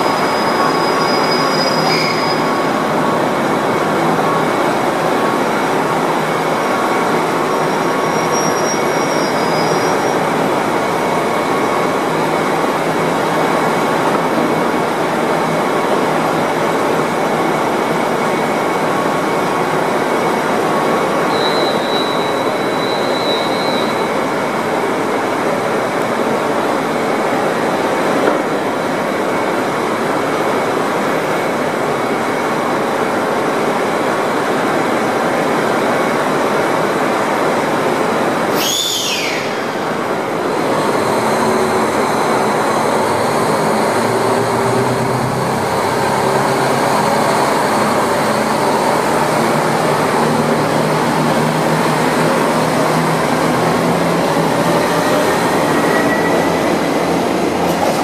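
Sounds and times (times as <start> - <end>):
diesel train engines running: 0.0 - 58.0
falling whistle-like tone: 21.3 - 24.2, 38.5 - 40.0.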